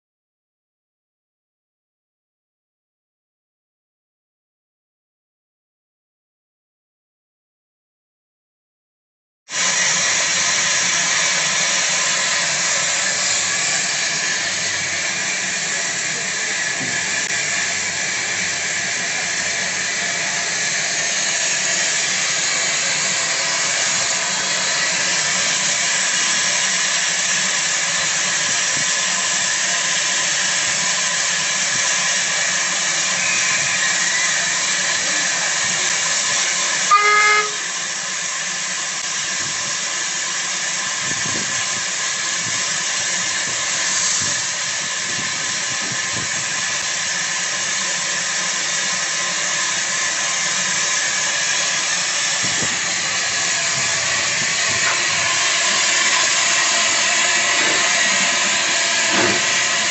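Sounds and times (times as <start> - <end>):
steam hissing: 9.5 - 59.9
steam whistle toot: 32.8 - 35.0, 36.3 - 37.9.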